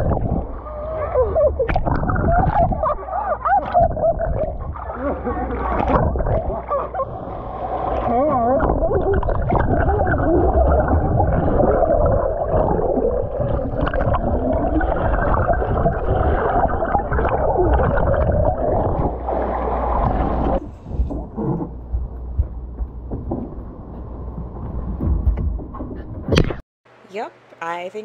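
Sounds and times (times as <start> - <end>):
muffled underwater noise: 0.0 - 21.8
knocks: 24.7 - 26.5.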